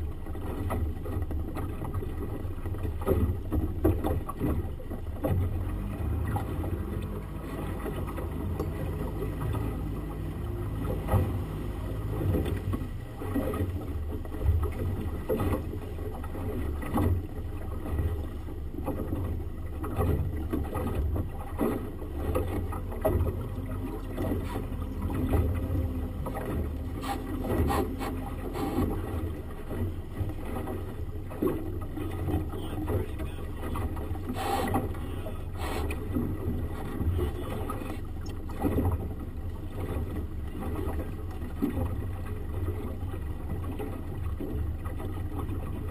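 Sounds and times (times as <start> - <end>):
outboard motor running: 0.0 - 45.9
water rushing past hull: 0.0 - 45.9.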